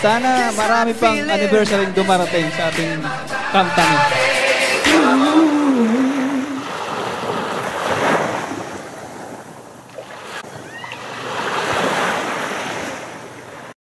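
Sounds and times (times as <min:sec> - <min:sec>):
waves washing up pebbly beach: 0:06.0 - 0:13.7.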